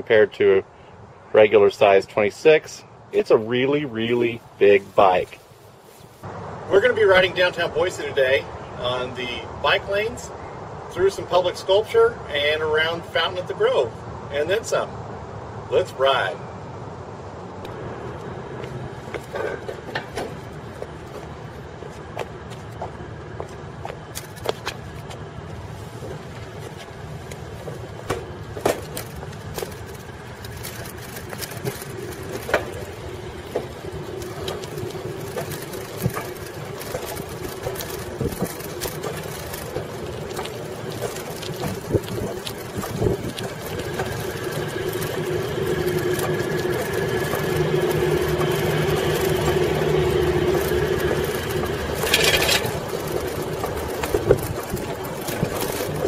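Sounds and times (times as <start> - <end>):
bicycle rolling noise: 3.1 - 10.2, 17.4 - 56.0
bike clicks and rattles: 19.0 - 56.0.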